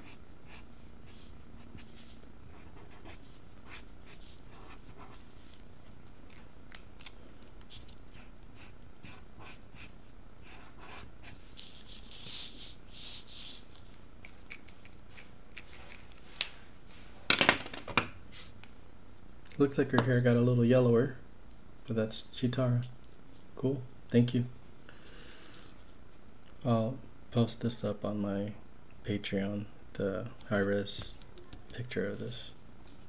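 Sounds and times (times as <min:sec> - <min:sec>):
marker scratching on paper: 0:00.0 - 0:05.6, 0:07.7 - 0:13.8.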